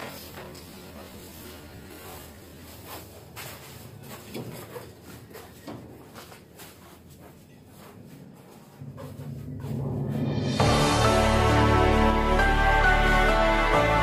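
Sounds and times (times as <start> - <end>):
soft footsteps: 0.0 - 10.7
steady low hum: 0.0 - 11.4.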